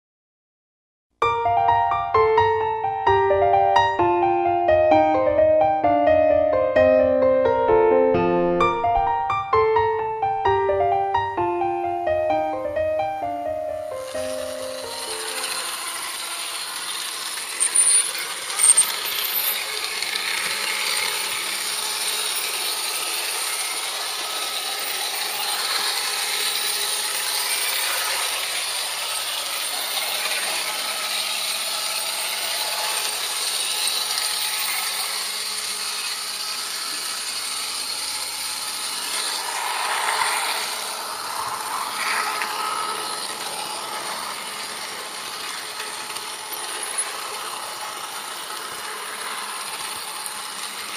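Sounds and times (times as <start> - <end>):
model train wheels rattling on rails: 13.9 - 50.9.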